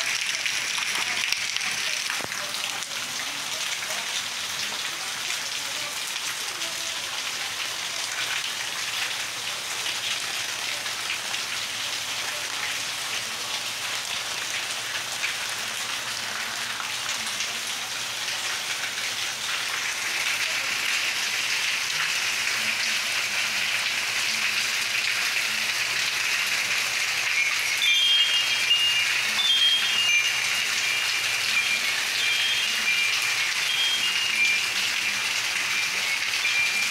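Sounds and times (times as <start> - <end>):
rain falling: 0.0 - 36.9
short high-pitched tones: 27.3 - 35.0.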